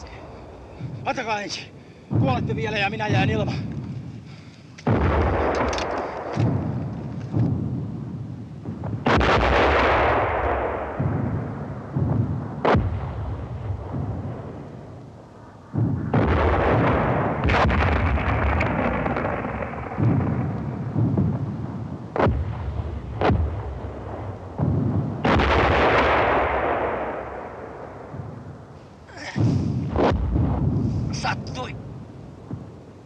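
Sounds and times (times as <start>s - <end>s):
shell explosions: 0.0s - 33.0s
sharp gunshots: 4.8s - 7.9s, 8.6s - 15.0s, 15.7s - 28.4s, 29.2s - 31.8s.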